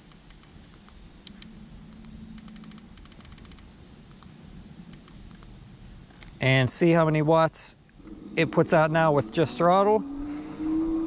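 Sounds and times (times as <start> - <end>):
small buttons clicking: 0.0 - 4.3.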